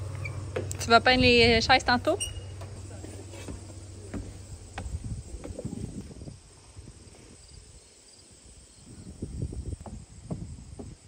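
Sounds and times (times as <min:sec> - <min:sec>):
insects chirping: 0:00.0 - 0:11.0
microphone handling knocks: 0:09.7 - 0:11.0.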